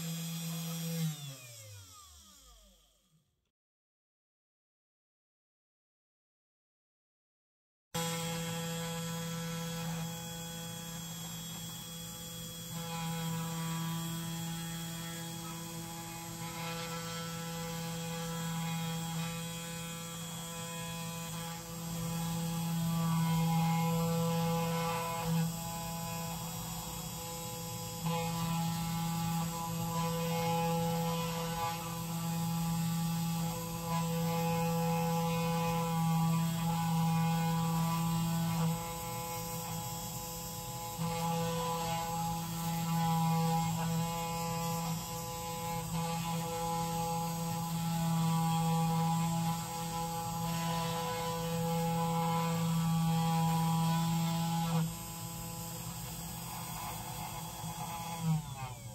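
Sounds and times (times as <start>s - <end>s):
router spindle motor engraving: 0.0s - 3.2s, 8.0s - 58.9s.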